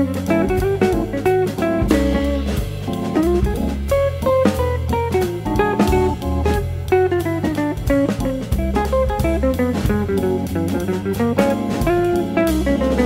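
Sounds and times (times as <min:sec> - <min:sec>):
light jazzy tune: 0:00.0 - 0:13.0.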